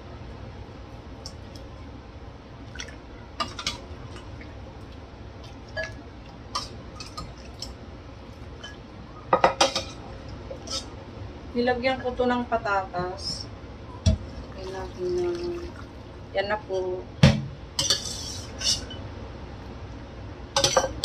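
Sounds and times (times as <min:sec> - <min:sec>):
steady low hum: 0:00.0 - 0:21.0
ladle clinking in pot: 0:20.6 - 0:21.0.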